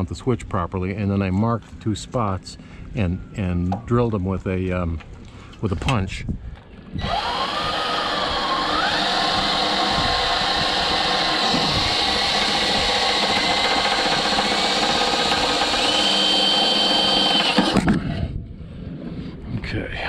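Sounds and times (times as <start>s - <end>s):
cordless drill drilling metal: 7.0s - 17.9s.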